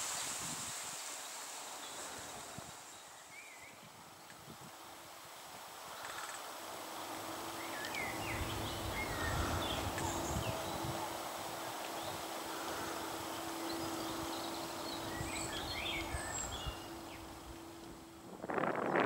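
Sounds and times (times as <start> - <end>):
faint steady hum: 4.2 - 19.0
bird warbling song: 7.5 - 19.0.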